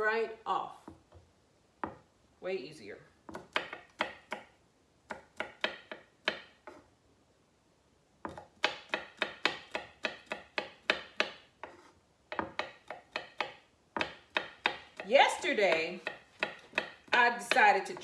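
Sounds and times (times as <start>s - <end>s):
knife chopping on wooden board: 3.3s - 4.5s, 5.1s - 6.8s, 8.2s - 18.0s.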